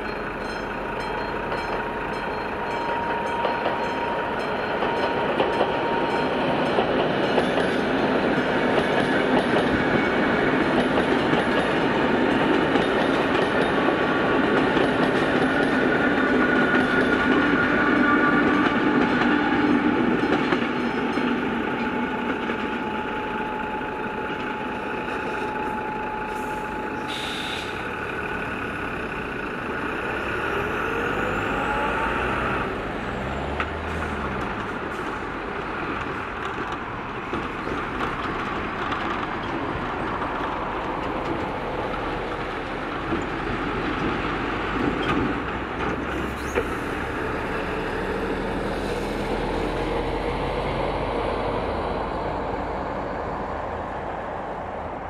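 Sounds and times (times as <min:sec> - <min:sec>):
lorries and cars accelerating: 0:26.2 - 0:55.0.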